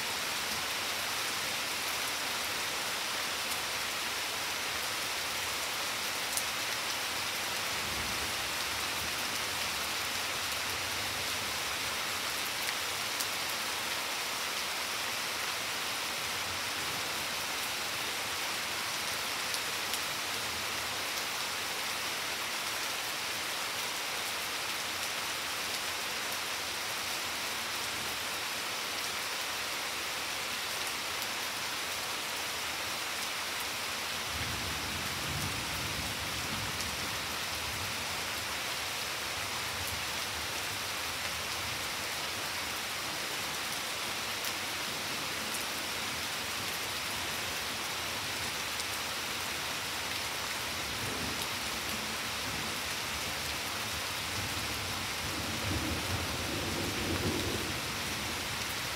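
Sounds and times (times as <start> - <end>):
rain on foliage and patio: 0.0 - 58.9.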